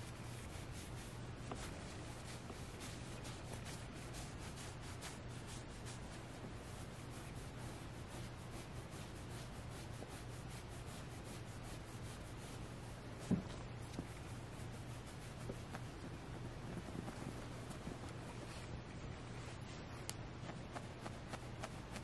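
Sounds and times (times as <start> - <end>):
fingernails scratching plush fabric: 0.0 - 18.7, 20.4 - 22.0
plush toy thump: 13.3 - 13.5.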